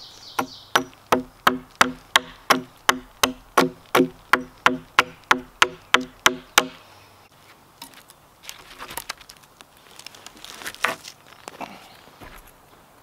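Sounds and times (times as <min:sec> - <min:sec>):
rustling: 0:07.3 - 0:12.9.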